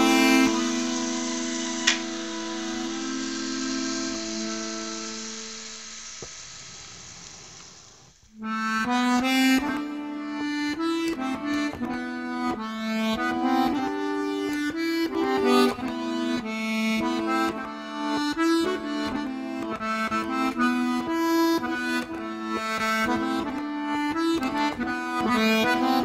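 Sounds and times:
instrumental music: 0.0s - 6.2s, 8.2s - 26.0s
small motor whirring: 0.0s - 8.2s.

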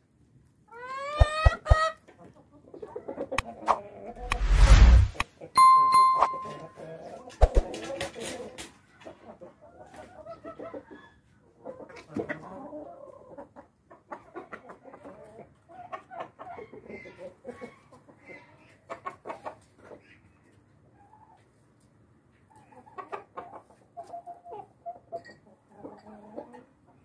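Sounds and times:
chickens clucking: 0.7s - 4.1s, 6.6s - 27.0s.

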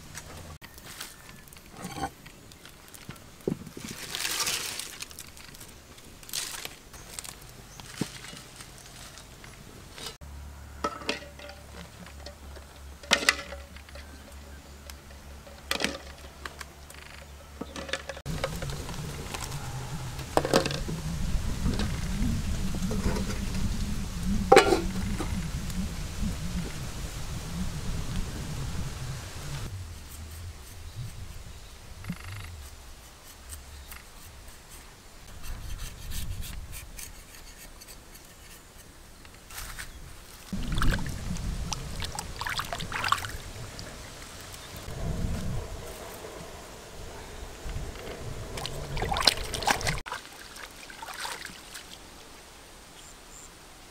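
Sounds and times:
low rumble: 18.3s - 33.0s, 40.5s - 50.0s
steady low hum: 18.3s - 35.5s.

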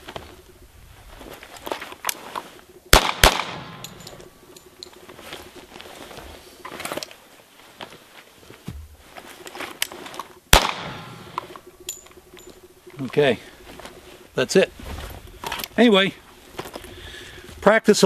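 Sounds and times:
gun handling clicks: 1.8s - 5.2s, 9.7s - 13.0s
pistol shots: 2.9s - 4.3s, 10.5s - 11.7s.

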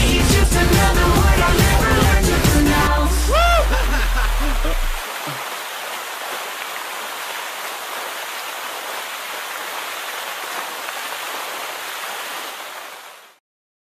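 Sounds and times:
running water rushing: 0.0s - 13.4s.

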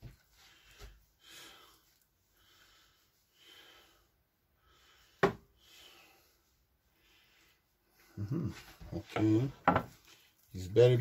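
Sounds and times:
person breathing: 0.3s - 8.8s.

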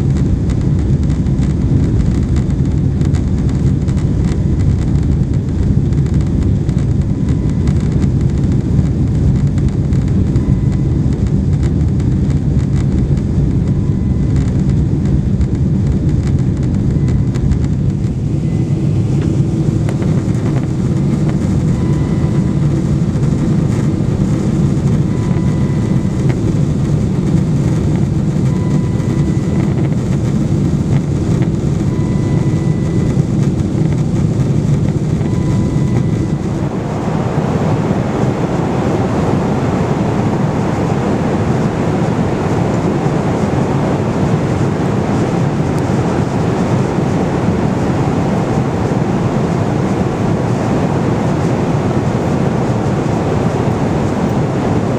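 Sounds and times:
airplane cabin engine rumble: 0.0s - 54.9s
faint short beeps: 10.3s - 11.0s, 21.6s - 22.6s, 25.0s - 26.5s, 28.4s - 30.1s, 31.8s - 33.4s, 35.0s - 36.7s.

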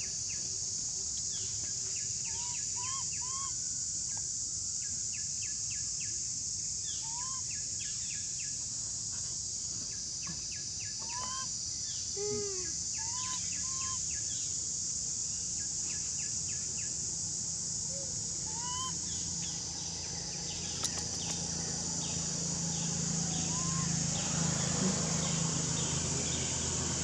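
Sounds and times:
high insect drone: 0.0s - 27.0s
birds whistling and chirping: 13.0s - 14.0s, 18.5s - 19.6s, 23.4s - 24.0s.

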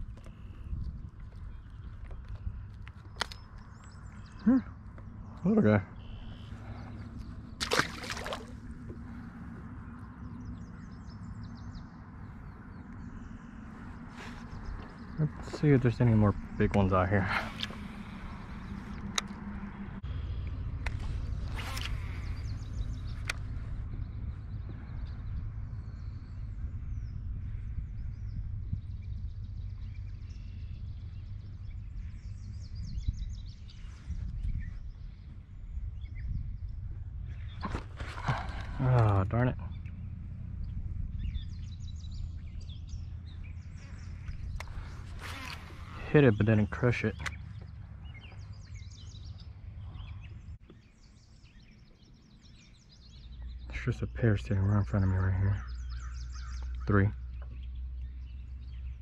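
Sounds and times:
birds chirping: 0.0s - 59.0s
steady low rumble: 0.0s - 59.0s
fish splashing into water: 7.6s - 8.8s.

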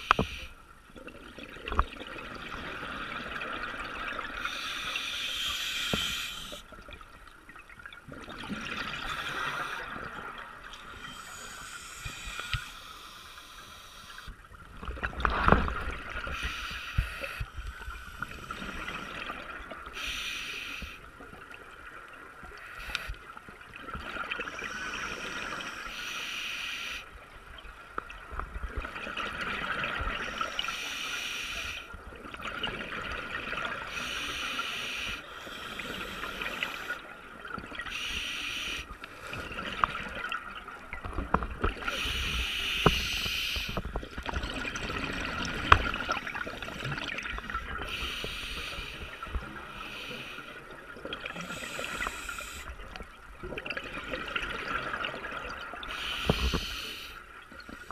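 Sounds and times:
water splashing and sloshing: 0.0s - 57.9s
steady hiss: 4.4s - 6.6s, 10.9s - 14.3s, 20.0s - 21.1s, 24.6s - 27.1s, 30.5s - 31.9s, 33.9s - 37.0s, 37.9s - 38.9s, 41.9s - 43.8s, 47.9s - 50.6s, 51.4s - 52.8s, 55.9s - 57.2s.

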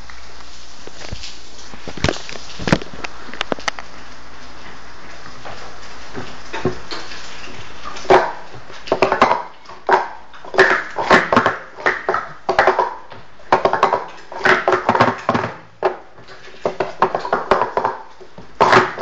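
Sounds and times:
plastic cups clattering on glass: 6.2s - 19.0s.

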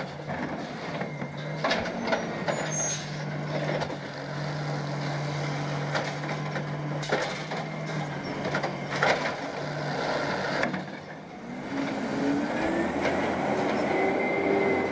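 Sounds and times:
garbage truck engine and hydraulics: 0.0s - 14.9s
cart knocks and clunks: 5.8s - 9.6s.

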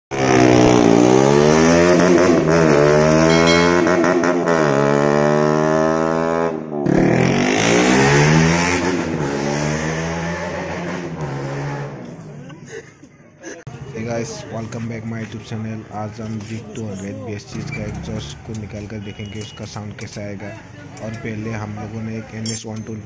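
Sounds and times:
motorcycle engine revving: 0.1s - 12.0s.

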